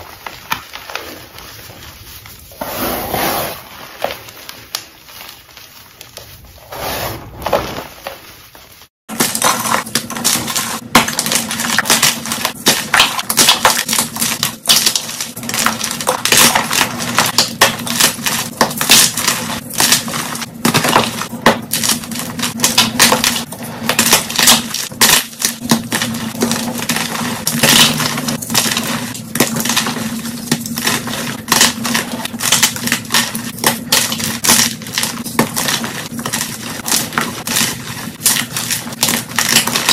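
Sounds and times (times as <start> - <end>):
hands rubbing chalk: 1.1 - 8.8
hands crushing chalk blocks: 9.1 - 39.9.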